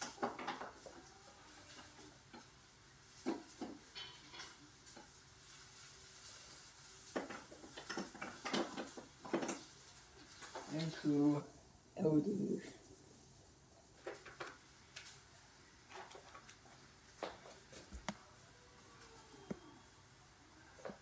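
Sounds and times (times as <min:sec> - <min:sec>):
hard objects knocking and clattering: 0:00.0 - 0:01.0, 0:07.1 - 0:09.7.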